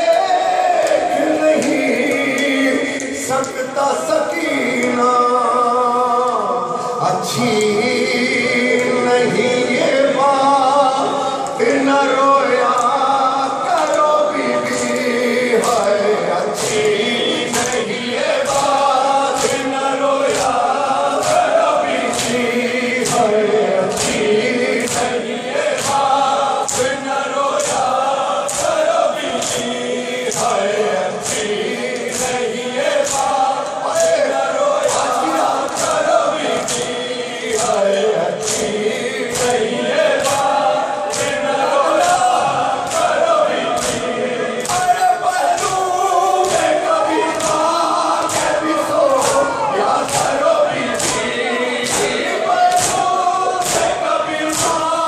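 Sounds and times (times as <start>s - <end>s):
crowd of men chanting: 0.0s - 55.0s
lead reciter singing lament: 0.0s - 55.0s
hands slapping bare chests: 18.4s - 22.4s, 23.9s - 37.8s, 39.3s - 43.2s, 45.6s - 48.6s, 49.2s - 54.9s.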